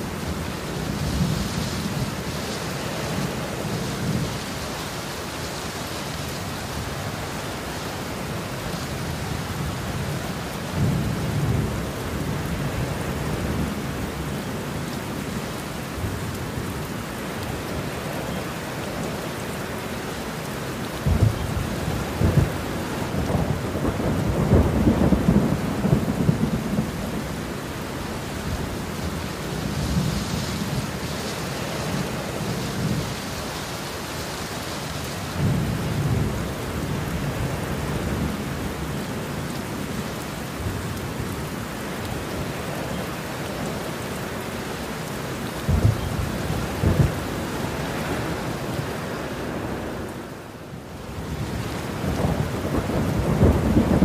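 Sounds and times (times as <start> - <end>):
heavy rain falling: 0.0 - 54.0
thunder rumbling: 21.0 - 27.8, 45.6 - 48.9, 51.3 - 54.0.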